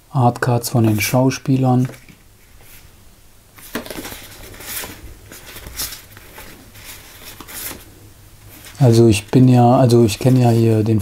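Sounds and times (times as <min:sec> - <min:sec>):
cards rustling: 0:00.8 - 0:02.8, 0:03.6 - 0:07.9, 0:08.5 - 0:11.0
cards tapping: 0:03.6 - 0:06.6.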